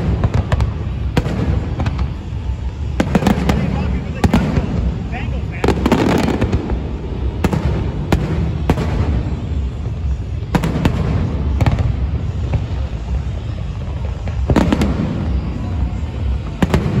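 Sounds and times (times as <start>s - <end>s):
continuous low rumble: 0.0s - 17.0s
rapid firework cracks: 0.0s - 17.0s.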